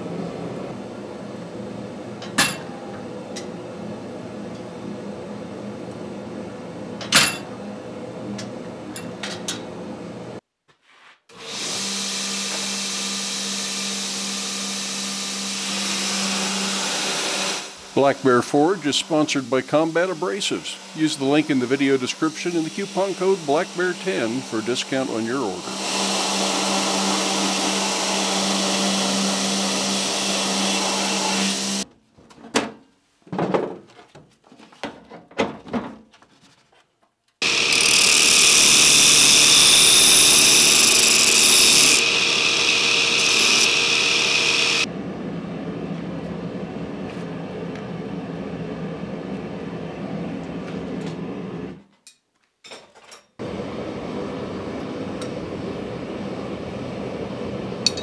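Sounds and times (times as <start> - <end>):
gas forge burner running: 0.0 - 10.4, 40.3 - 51.8, 53.4 - 58.0
belt grinder grinding steel: 11.4 - 31.8, 37.4 - 44.9.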